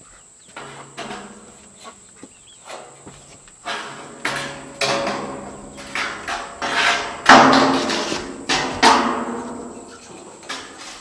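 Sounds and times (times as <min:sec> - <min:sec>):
metal roofing sheets banging: 0:00.5 - 0:11.0.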